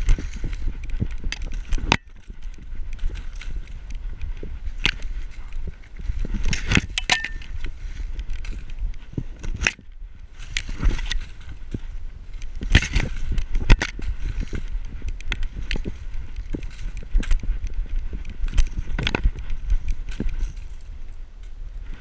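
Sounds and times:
dog feet crunching through snow: 0.0 - 9.6
corn stalks crackling and scraping: 0.0 - 22.0.

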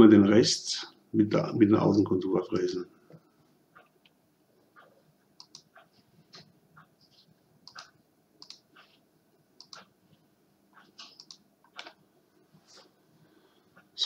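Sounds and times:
faint computer mouse clicks: 4.8 - 6.5, 7.6 - 8.9, 9.6 - 9.9, 10.8 - 12.0.

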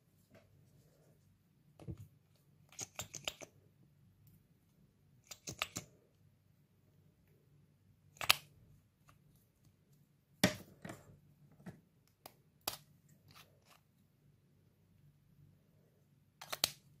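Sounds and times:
plastic makeup caps clicking: 5.2 - 5.9, 16.4 - 16.8.

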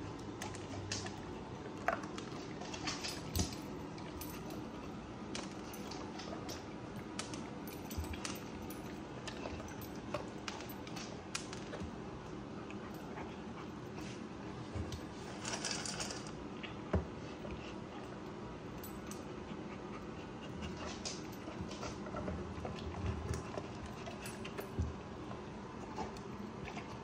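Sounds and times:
dog claws clicking on tiles: 0.2 - 11.9, 20.6 - 24.8.

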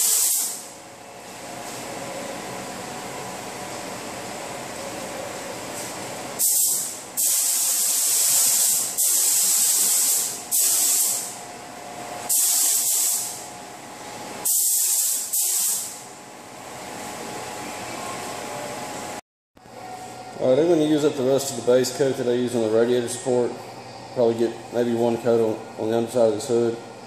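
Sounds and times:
paint spray gun hissing: 0.0 - 0.6, 6.4 - 11.4, 12.3 - 13.4, 14.4 - 16.0
ventilation hum: 0.0 - 27.0.

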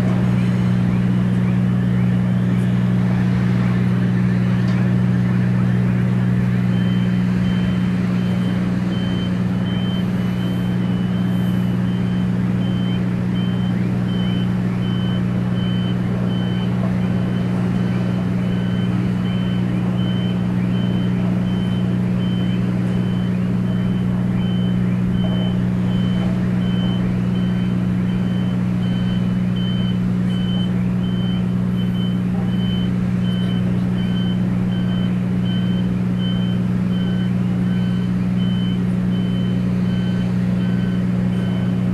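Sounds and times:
heavy machinery droning: 0.0 - 41.9
lower-pitched warning beeper: 6.0 - 41.8
high electronic warning beeper: 6.7 - 41.8.

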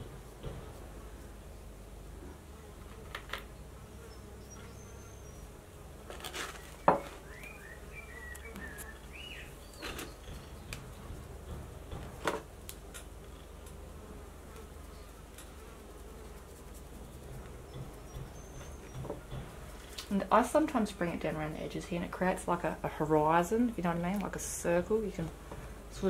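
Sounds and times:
insect buzzing: 2.2 - 21.0
sharp clicks and knocks: 9.7 - 13.8, 17.0 - 20.2.

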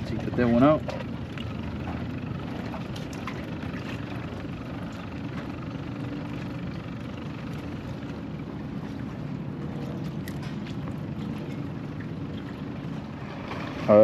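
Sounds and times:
water lapping: 0.0 - 14.0.

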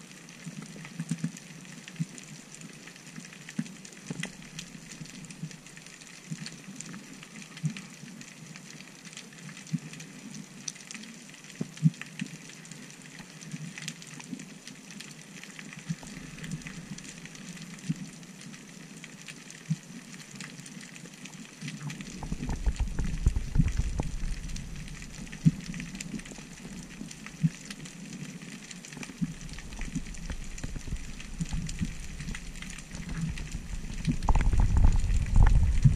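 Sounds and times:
low rumble of water movement: 0.1 - 35.9
sharp clicks and crackles: 0.6 - 35.9
faint underwater hiss: 12.6 - 20.8.

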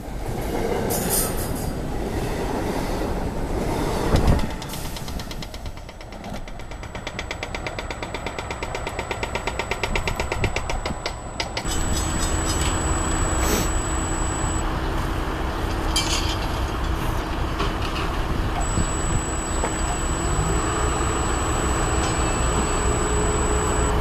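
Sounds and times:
thin high whine: 7.4 - 14.6, 18.6 - 24.0.

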